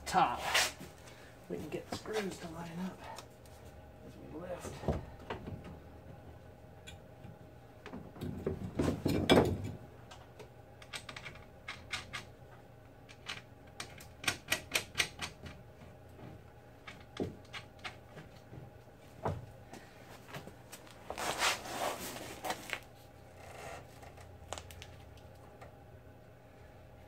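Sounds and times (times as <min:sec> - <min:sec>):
metal clicking and knocking: 0:13.1 - 0:15.6.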